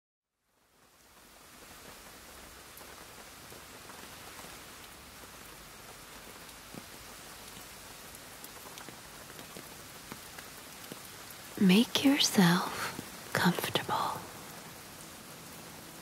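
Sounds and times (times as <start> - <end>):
rain hissing: 0.7 - 16.0
raindrops landing: 6.4 - 14.8.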